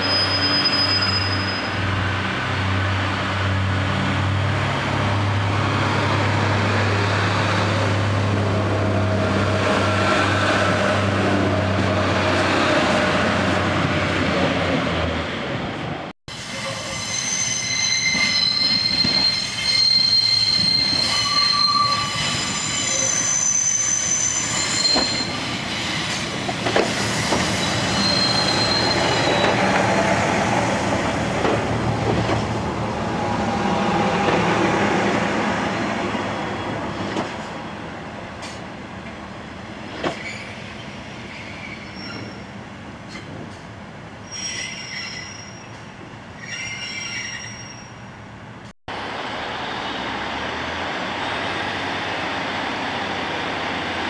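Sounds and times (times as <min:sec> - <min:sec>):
train wheels squealing: 0:00.0 - 0:01.9, 0:16.5 - 0:26.3, 0:26.9 - 0:29.7, 0:40.1 - 0:42.5, 0:44.2 - 0:45.8, 0:46.4 - 0:48.0
train rumbling: 0:00.0 - 0:54.0.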